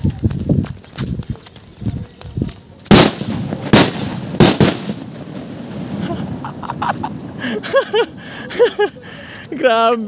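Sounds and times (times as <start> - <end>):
firecrackers exploding: 2.7 - 8.3.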